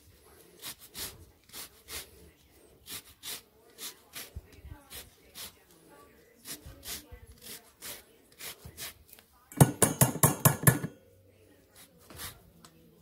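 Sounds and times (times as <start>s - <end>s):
zester rasping over lemon rind: 2.8s - 5.6s
grater clanking on metal bowl: 9.6s - 11.0s.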